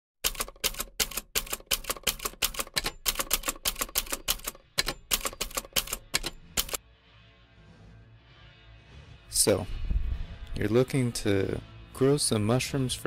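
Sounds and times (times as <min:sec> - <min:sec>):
typewriter keys striking: 0:00.2 - 0:06.8.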